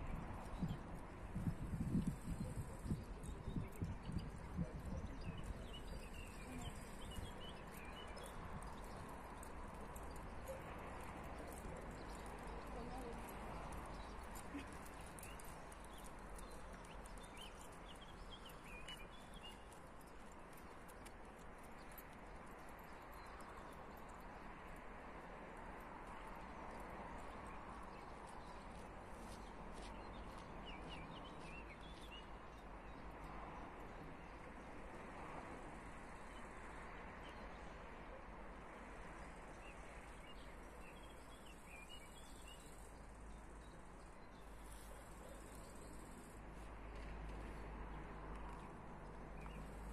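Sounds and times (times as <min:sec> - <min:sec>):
faint outdoor background noise: 0:00.0 - 0:49.9
light ticks: 0:07.7 - 0:24.9
bird chirps: 0:40.3 - 0:46.3.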